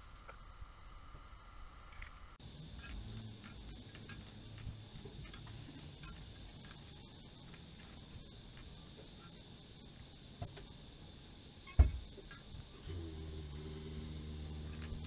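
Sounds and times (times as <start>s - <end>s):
metal spoon scraping a steel pot: 2.7s - 8.1s.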